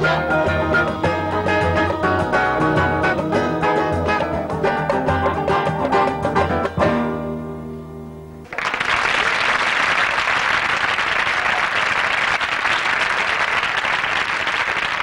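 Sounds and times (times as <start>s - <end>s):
audience applause: 8.5s - 15.0s.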